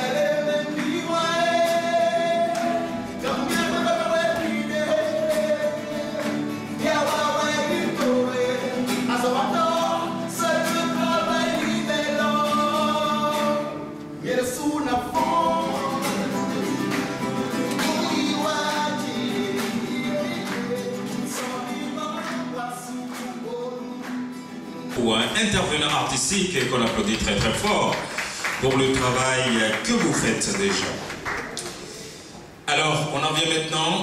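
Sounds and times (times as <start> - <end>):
man singing: 0.0 - 24.2
acoustic guitar: 0.0 - 34.0.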